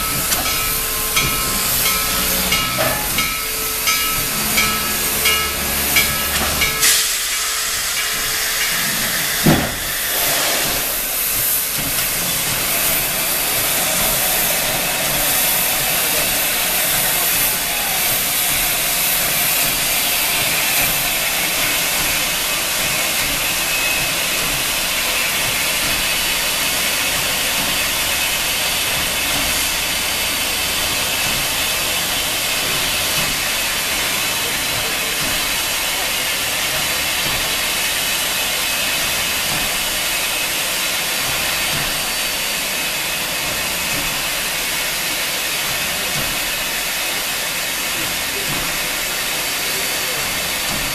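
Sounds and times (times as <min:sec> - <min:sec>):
steam locomotive hissing: 0:00.0 - 0:50.9
sharp knock: 0:09.4 - 0:09.8.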